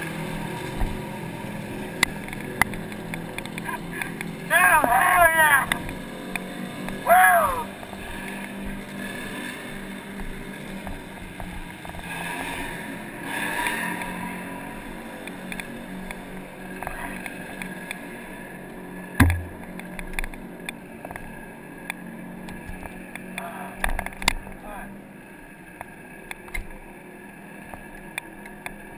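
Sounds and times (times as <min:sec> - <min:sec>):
dirt bike engine running: 0:00.0 - 0:28.9
person shouting: 0:04.5 - 0:05.8, 0:07.0 - 0:07.7
sharp thump: 0:19.2 - 0:19.7.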